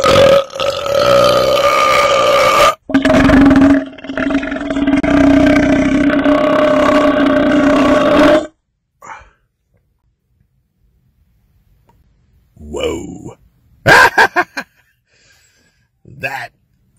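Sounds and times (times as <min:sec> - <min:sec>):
man belching: 0:00.0 - 0:09.2.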